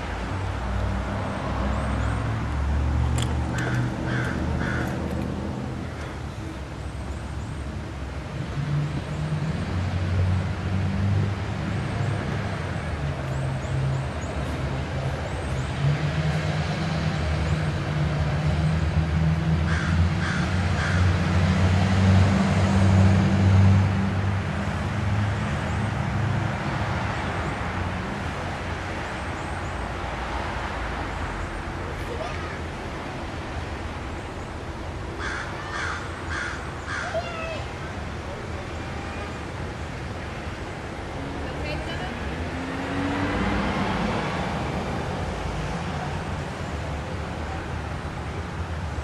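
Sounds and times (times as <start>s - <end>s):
crows cawing: 3.5s - 5.0s, 19.7s - 21.2s, 35.2s - 37.6s.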